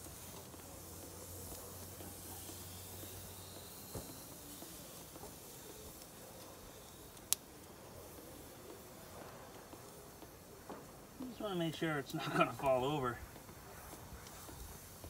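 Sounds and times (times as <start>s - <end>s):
gas grill burners hissing: 0.0s - 15.0s
sharp click on grill grate: 6.0s - 7.7s.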